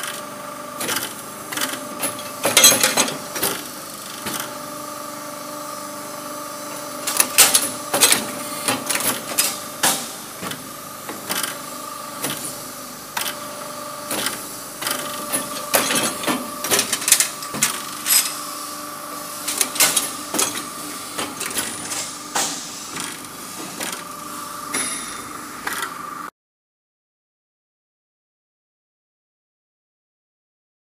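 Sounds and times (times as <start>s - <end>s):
machine whining hum: 0.0s - 26.3s
sharp metallic clanks: 24.7s - 25.2s.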